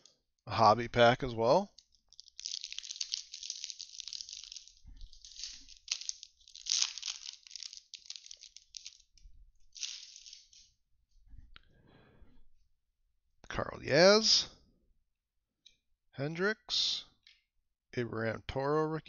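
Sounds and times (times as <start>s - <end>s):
foil wrapper crinkling and tearing: 1.7s - 10.7s.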